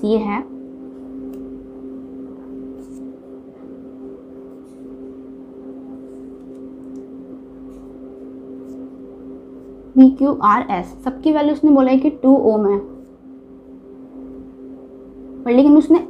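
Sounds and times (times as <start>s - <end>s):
two-tone motor hum: 0.0s - 16.0s
pen scratching on paper: 2.7s - 3.1s.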